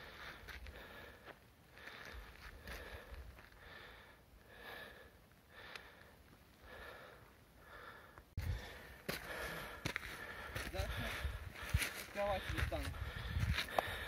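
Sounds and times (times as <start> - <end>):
person breathing hard: 0.0 - 14.0
wind rumble on microphone: 12.6 - 14.0.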